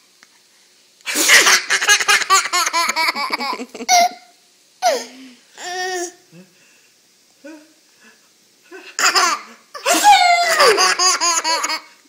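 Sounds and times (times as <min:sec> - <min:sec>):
toddler laughing: 0:01.3 - 0:05.1, 0:08.9 - 0:11.9.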